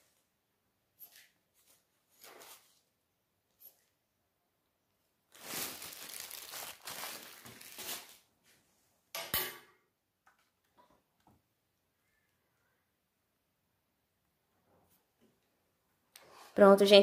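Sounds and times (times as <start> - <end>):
plastic bag crinkling: 5.3 - 8.3.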